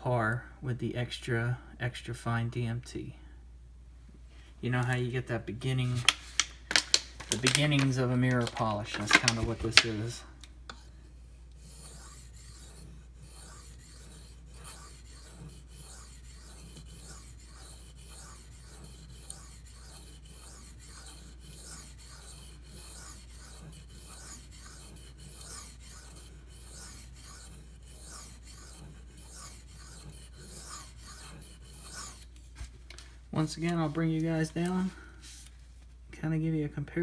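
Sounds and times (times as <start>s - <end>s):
knife strokes on sharpening stone: 11.6s - 32.3s.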